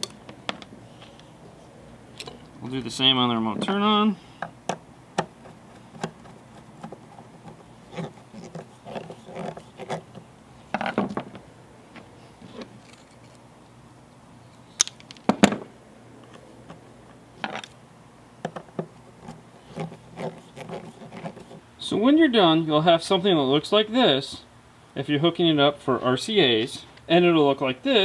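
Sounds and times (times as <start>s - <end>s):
wire rustling: 5.2s - 13.4s.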